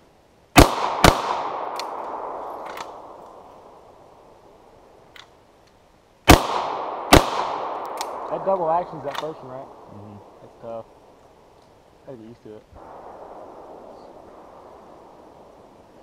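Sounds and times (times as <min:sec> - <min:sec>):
pistol shots: 0:00.6 - 0:03.4, 0:06.3 - 0:09.8
gunshot echo: 0:00.6 - 0:03.9, 0:06.3 - 0:10.4.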